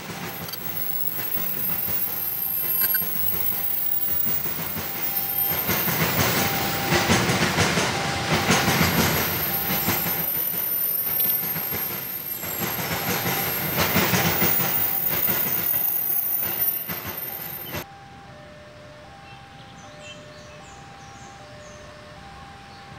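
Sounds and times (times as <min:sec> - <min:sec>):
train wheels clattering over rail joints: 0:00.0 - 0:17.8
train rumble: 0:00.0 - 0:17.9.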